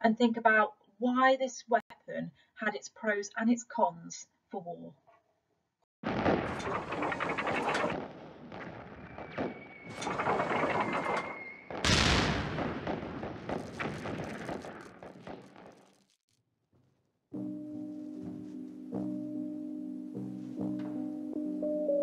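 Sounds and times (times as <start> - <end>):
heavy boom: 6.0 - 15.9
rapid machine-gun fire: 6.0 - 16.0.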